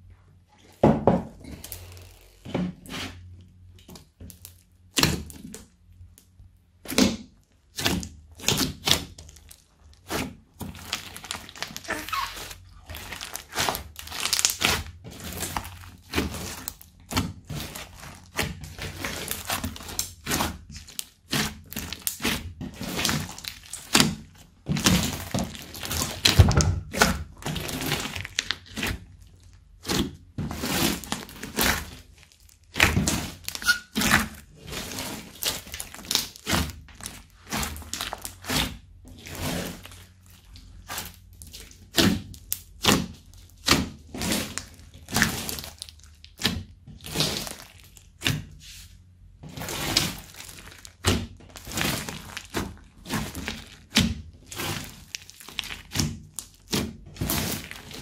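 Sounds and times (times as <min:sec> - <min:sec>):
slime popping and crackling: 0:06.8 - 0:48.5, 0:49.5 - 0:58.0.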